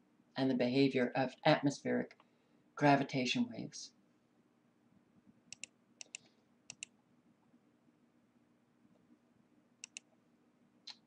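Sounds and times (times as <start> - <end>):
faint steady hum: 0.0 - 11.0
computer mouse clicking: 5.5 - 6.9, 9.8 - 10.1.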